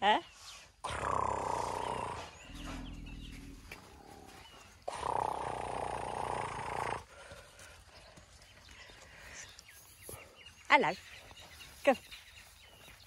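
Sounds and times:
elephant calf rumbling and roaring: 0:00.8 - 0:07.0.

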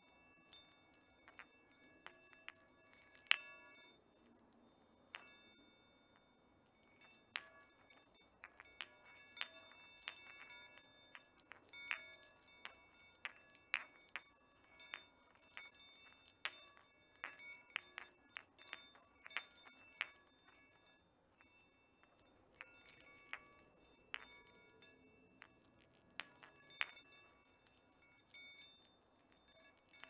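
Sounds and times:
bell-like chimes ringing: 0:00.0 - 0:30.0
meditation balls clinking: 0:00.0 - 0:30.0.

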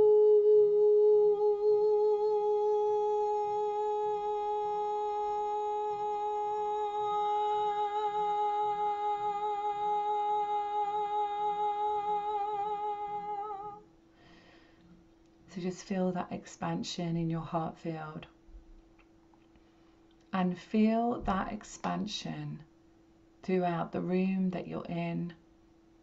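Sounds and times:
woman singing long held note: 0:00.0 - 0:13.9.

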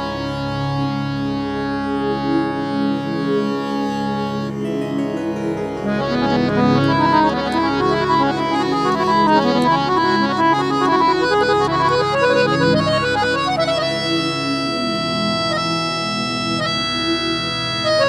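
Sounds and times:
harmonium melody: 0:00.0 - 0:18.0.

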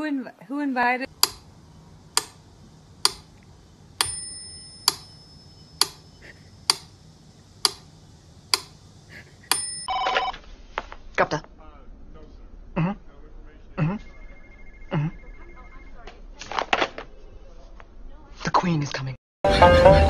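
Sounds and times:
metronome ticking: 0:04.0 - 0:06.1, 0:07.6 - 0:07.9, 0:09.5 - 0:09.9
metronome bell ringing: 0:04.0 - 0:06.2, 0:09.5 - 0:09.9.

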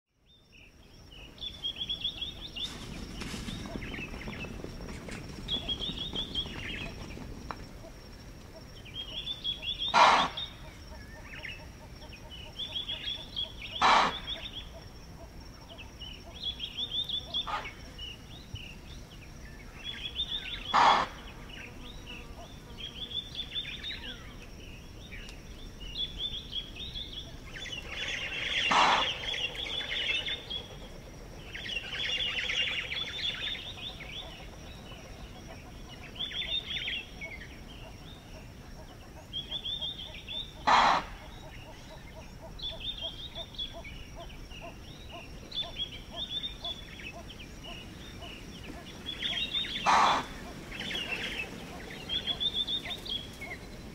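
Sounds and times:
birds chirping: 0:00.3 - 0:53.9
impala alarm chuffs: 0:09.7 - 0:10.6, 0:13.5 - 0:14.5, 0:20.7 - 0:21.3, 0:27.9 - 0:31.0, 0:40.5 - 0:41.9, 0:49.7 - 0:50.4.

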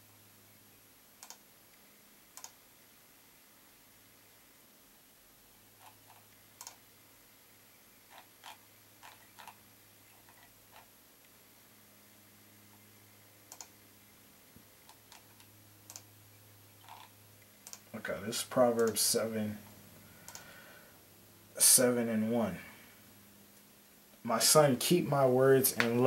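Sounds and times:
faint low hum: 0:00.0 - 0:26.0
computer mouse clicks: 0:01.2 - 0:01.4, 0:02.3 - 0:02.6, 0:05.8 - 0:06.8, 0:13.5 - 0:13.8, 0:14.8 - 0:16.1, 0:16.8 - 0:17.9, 0:20.2 - 0:20.5.

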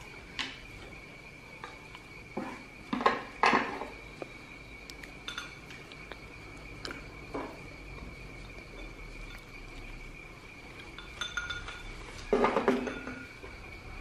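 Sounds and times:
chopsticks clinking on bowls: 0:05.2 - 0:06.1, 0:10.8 - 0:13.4.

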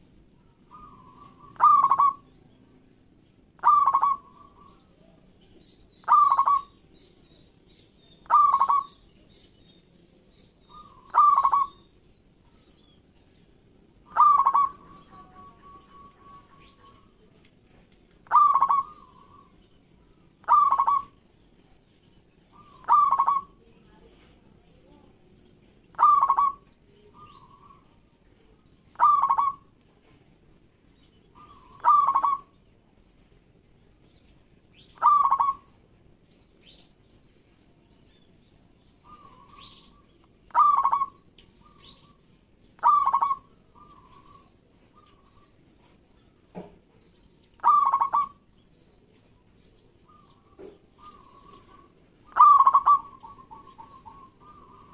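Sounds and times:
dove cooing: 0:00.7 - 0:02.3, 0:03.6 - 0:04.8, 0:06.0 - 0:06.8, 0:08.2 - 0:09.0, 0:10.7 - 0:11.8, 0:14.0 - 0:17.1, 0:18.2 - 0:19.6, 0:20.4 - 0:21.2, 0:22.5 - 0:23.6, 0:26.0 - 0:26.6, 0:28.9 - 0:29.7, 0:31.4 - 0:32.6, 0:35.0 - 0:35.7, 0:40.5 - 0:42.2, 0:42.8 - 0:45.5, 0:47.6 - 0:48.4, 0:50.0 - 0:54.9.

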